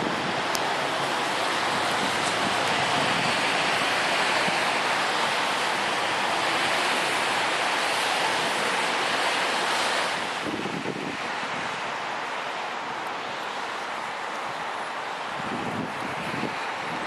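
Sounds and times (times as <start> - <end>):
wind on microphone: 0.0 - 12.1, 13.2 - 17.0
commuter train rushing: 0.0 - 17.0.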